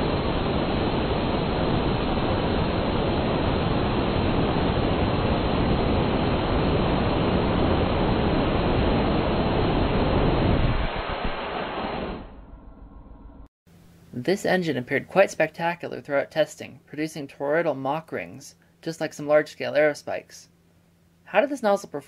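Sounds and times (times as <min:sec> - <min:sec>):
rocket engine exhaust hissing: 0:00.0 - 0:12.3.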